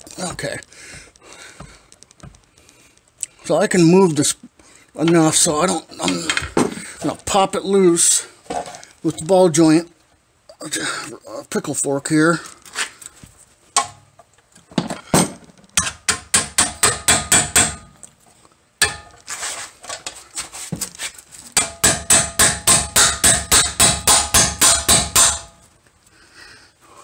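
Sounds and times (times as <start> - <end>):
hammer striking metal fork: 15.8 - 18.0, 18.8 - 19.2, 21.6 - 25.6.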